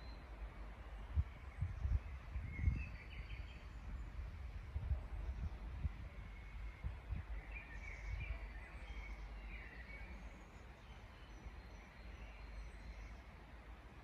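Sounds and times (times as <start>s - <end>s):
songbirds chirping: 0.0s - 14.0s
wind buffeting microphone: 1.0s - 8.7s.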